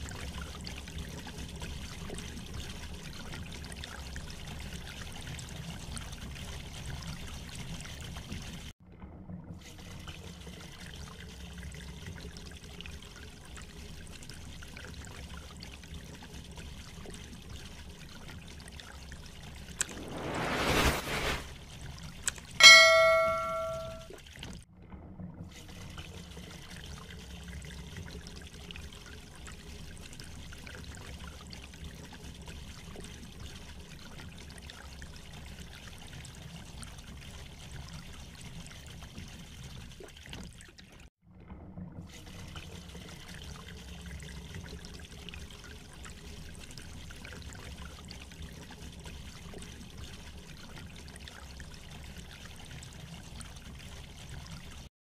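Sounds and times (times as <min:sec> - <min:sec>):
bell-like chime: 0:22.6 - 0:24.0.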